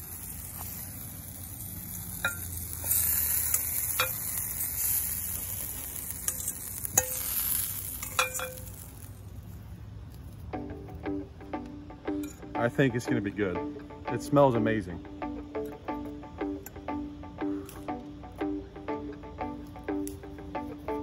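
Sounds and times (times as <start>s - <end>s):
oil sizzling in a frying pan: 0.0s - 9.3s
fork clinking on a pan: 6.2s - 8.8s.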